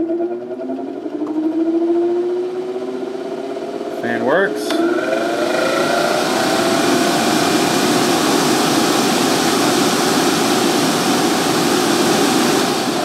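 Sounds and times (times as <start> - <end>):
dog dryer blower running: 4.3 - 13.0.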